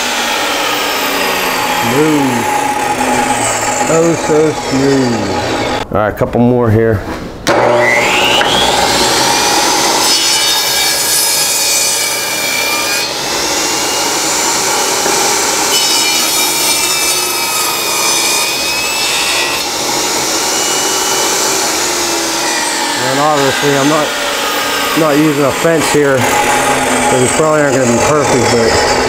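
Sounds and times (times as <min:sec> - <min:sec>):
table saw cutting wood: 0:00.0 - 0:05.8, 0:07.4 - 0:29.0.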